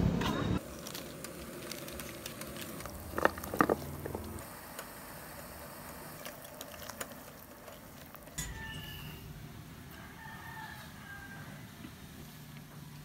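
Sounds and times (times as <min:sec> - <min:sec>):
seasoning packet crinkling: 0:00.6 - 0:04.4, 0:05.9 - 0:08.4.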